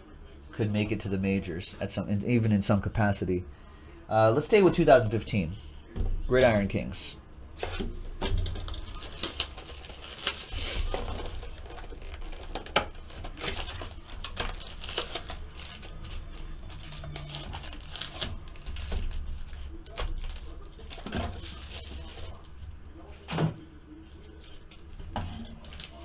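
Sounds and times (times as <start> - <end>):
foil packs crinkling: 8.7 - 22.5, 25.5 - 26.0.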